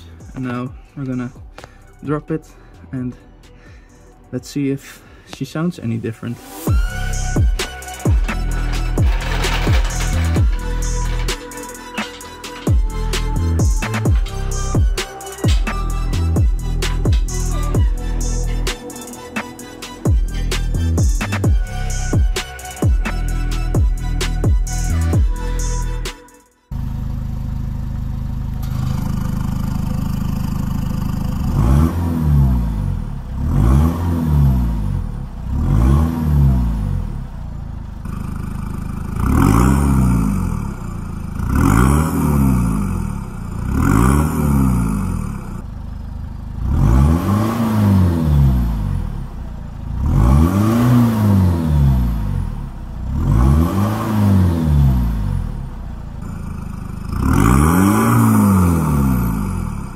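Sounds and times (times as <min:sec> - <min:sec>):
diesel engine idling and revving: 0:00.0 - 0:59.9.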